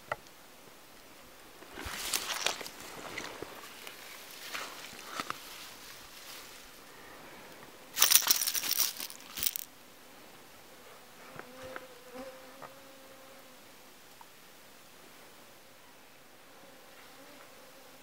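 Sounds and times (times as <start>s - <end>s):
faint steady buzz: 0.0s - 18.0s
rustling in wet grass: 1.5s - 9.7s.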